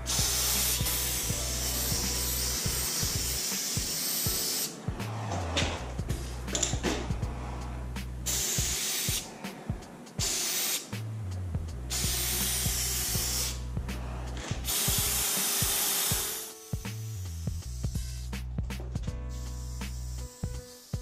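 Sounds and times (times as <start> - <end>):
spray paint can hissing: 0.0 - 4.8, 8.2 - 9.3, 10.2 - 11.1, 11.9 - 13.6, 14.6 - 18.5, 19.3 - 21.0.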